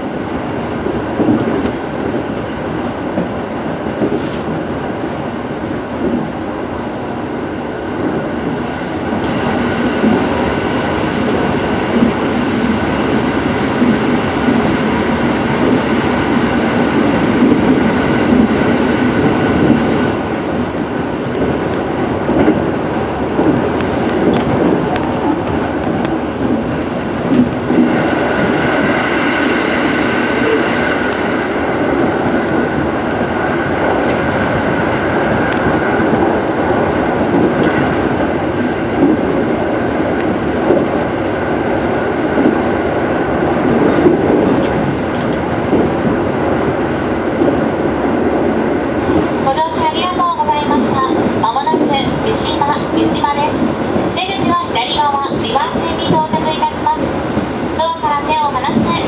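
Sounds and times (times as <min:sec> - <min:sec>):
train wheels rumbling on rail: 0:00.0 - 0:59.0
sharp clicks: 0:44.6 - 0:45.5.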